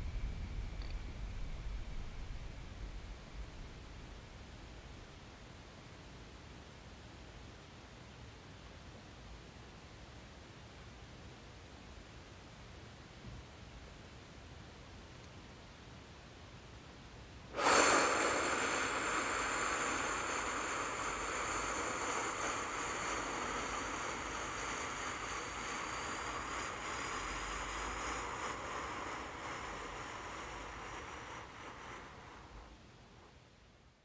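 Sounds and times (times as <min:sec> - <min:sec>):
faint steady high tones: 0:00.0 - 0:05.4
ambient hiss wash: 0:00.0 - 0:34.0.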